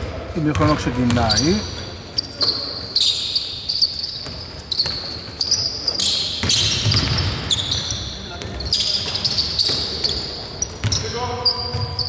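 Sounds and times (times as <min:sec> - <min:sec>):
basketball bouncing: 0:00.0 - 0:01.6, 0:04.2 - 0:12.0
shoes squeaking on court floor: 0:00.4 - 0:12.0.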